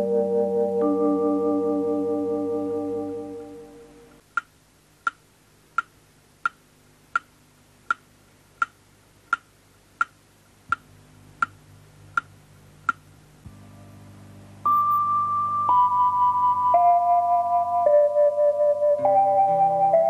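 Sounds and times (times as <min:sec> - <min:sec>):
held synthesizer chord: 0:00.0 - 0:04.2, 0:13.5 - 0:20.0.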